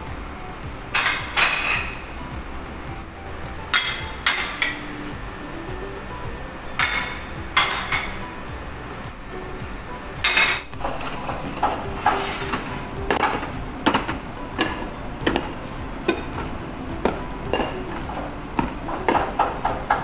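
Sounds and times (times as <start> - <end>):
background music: 0.0 - 20.0
plates clinking and knocking: 0.9 - 2.3, 3.4 - 5.0, 6.6 - 8.4, 10.2 - 20.0.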